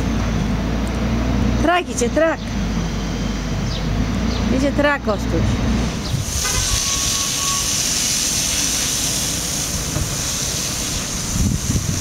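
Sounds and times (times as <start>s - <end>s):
hose spray hitting pavement: 6.0s - 12.0s.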